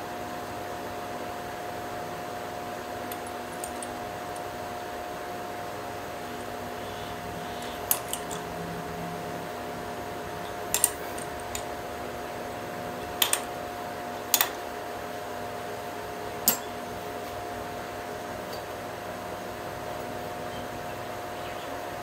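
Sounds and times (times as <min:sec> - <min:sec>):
steady hum: 0:00.0 - 0:22.0
sharp metal clicks and clinks: 0:03.1 - 0:04.5, 0:07.6 - 0:08.5, 0:10.4 - 0:11.7, 0:13.0 - 0:13.5, 0:14.3 - 0:14.6, 0:16.4 - 0:16.8.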